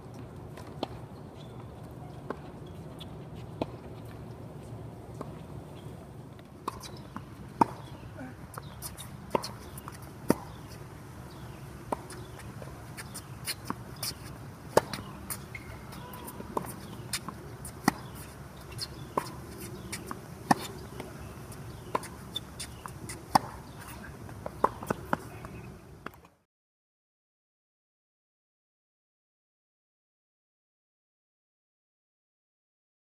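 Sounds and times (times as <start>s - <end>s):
low steady background noise: 0.0s - 26.4s
tennis ball bouncing on court: 2.3s - 4.1s, 6.6s - 26.2s
tennis ball struck by racquet: 8.6s - 26.2s.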